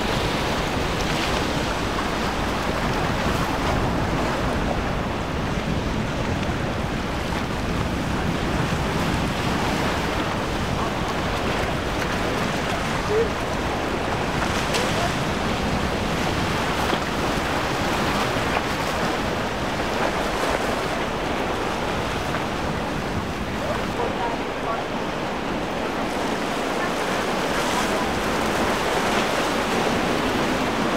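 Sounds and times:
waves breaking: 0:00.0 - 0:30.9
wind buffeting microphone: 0:00.0 - 0:30.9.

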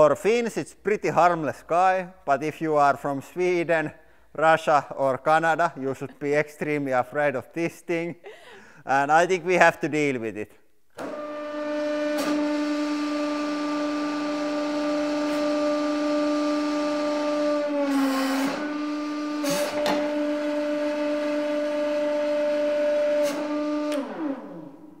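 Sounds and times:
hydraulic pump humming: 0:11.0 - 0:25.0.

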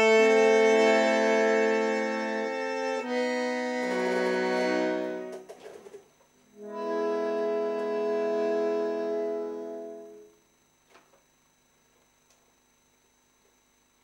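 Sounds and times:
bandoneon playing slow chords: 0:00.0 - 0:05.4, 0:06.5 - 0:10.4.

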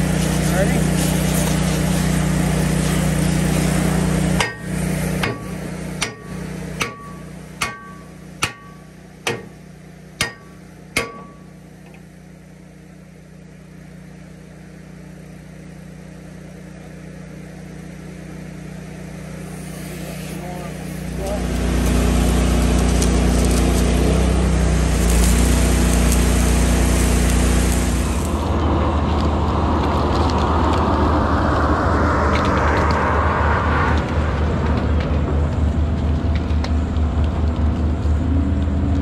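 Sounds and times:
engine hum: 0:00.0 - 0:39.0
hammer striking steel: 0:04.4 - 0:09.6, 0:10.2 - 0:11.6.

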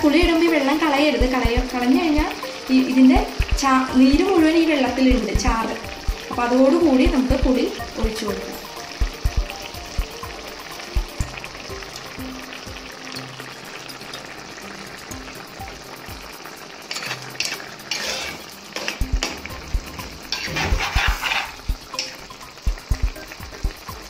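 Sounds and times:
sizzling in a pot: 0:00.0 - 0:24.0
spoon scraping a pot: 0:16.9 - 0:19.0, 0:20.3 - 0:22.2.

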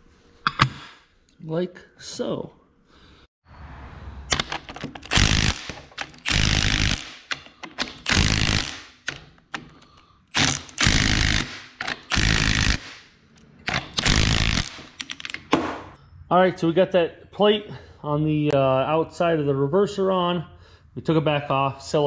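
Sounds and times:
impact wrench hammering bolts: 0:04.3 - 0:16.0.

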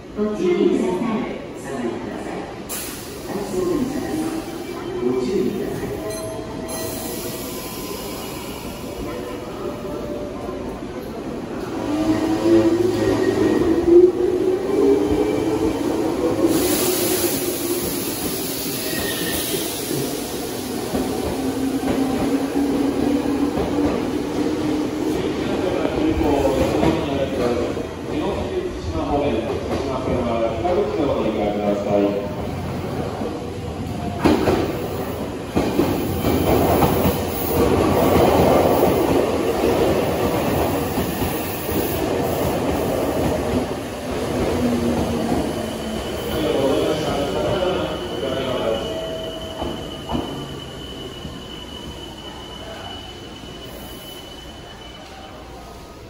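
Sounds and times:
rumble of wheels on rail: 0:00.0 - 0:53.6.

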